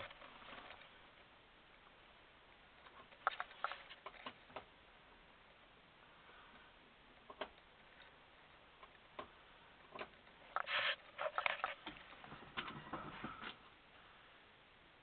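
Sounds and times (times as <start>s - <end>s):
rustling: 0.0s - 1.3s, 10.0s - 14.2s.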